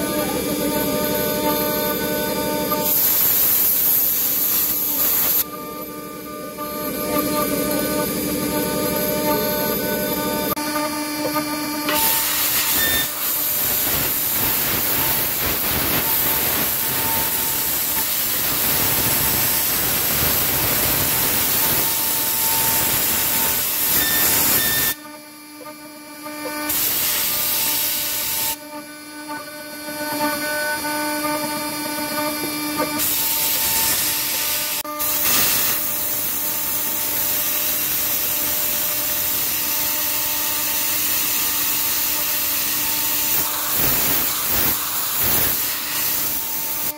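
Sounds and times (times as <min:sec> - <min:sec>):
engraving spindle whine: 0:00.0 - 0:46.9
air nozzle hissing: 0:12.0 - 0:21.9, 0:33.0 - 0:36.9, 0:40.8 - 0:46.9.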